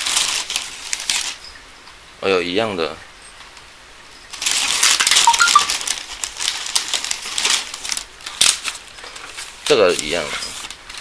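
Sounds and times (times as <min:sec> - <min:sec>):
food packaging crinkling: 0:00.0 - 0:01.4, 0:04.3 - 0:11.0.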